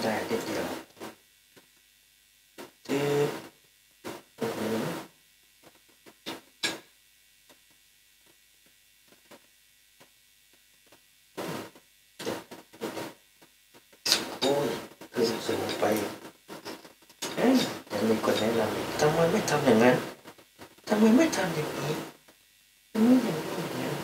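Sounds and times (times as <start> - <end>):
man talking: 0.0 - 0.8, 2.9 - 3.4, 4.4 - 5.0, 14.1 - 16.2, 17.2 - 20.1
low steady hum: 0.0 - 24.0.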